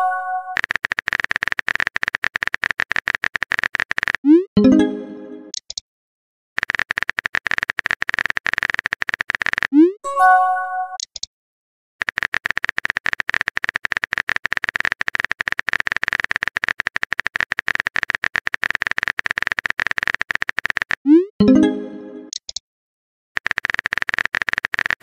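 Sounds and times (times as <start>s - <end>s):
message notification tone: 0.0s - 0.6s, 4.3s - 5.5s, 9.8s - 11.0s, 21.1s - 22.3s
phone keyboard clicks: 0.6s - 4.3s, 5.5s - 5.8s, 6.6s - 9.8s, 11.0s - 11.3s, 12.0s - 21.1s, 22.3s - 22.6s, 23.4s - 25.0s.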